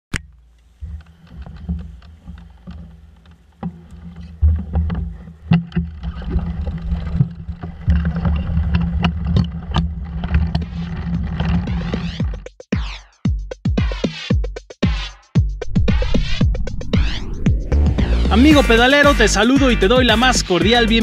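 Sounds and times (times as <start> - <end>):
bikes clicking and knocking: 0.2 - 12.4
wind buffeting microphone: 15.6 - 18.4.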